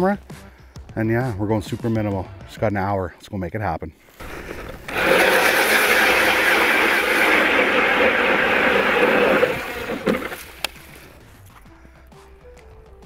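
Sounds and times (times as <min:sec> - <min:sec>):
electric ice auger drilling: 0:04.2 - 0:11.0.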